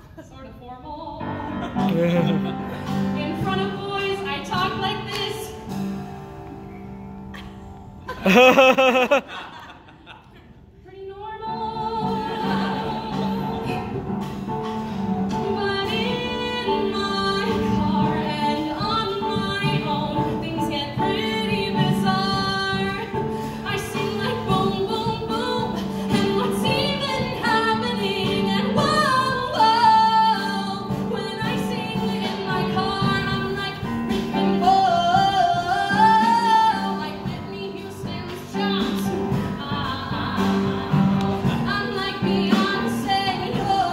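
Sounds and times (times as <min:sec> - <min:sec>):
woman singing into microphone: 0:10.8 - 0:14.3, 0:15.3 - 0:43.9.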